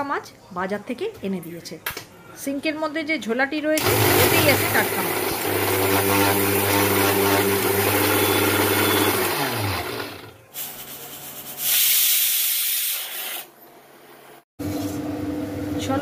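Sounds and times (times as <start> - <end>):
mixer grinder running: 3.8 - 10.4
pressure cooker hissing steam: 11.6 - 13.5.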